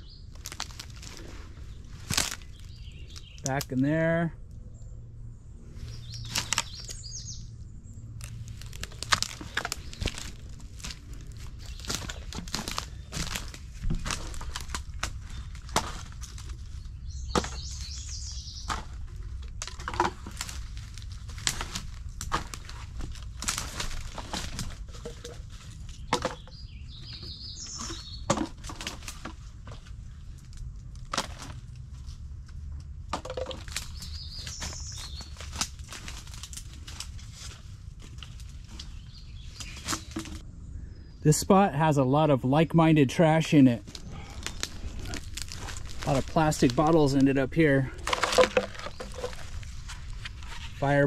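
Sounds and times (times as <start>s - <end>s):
bird chirping: 0.0s - 0.4s, 1.7s - 4.0s, 4.6s - 10.6s, 16.6s - 19.0s, 25.9s - 28.3s, 33.8s - 35.4s, 38.8s - 41.3s
debris crackling and snapping: 0.3s - 1.3s, 2.0s - 3.7s, 6.2s - 7.0s, 8.1s - 26.4s, 27.8s - 40.4s, 43.8s - 50.8s.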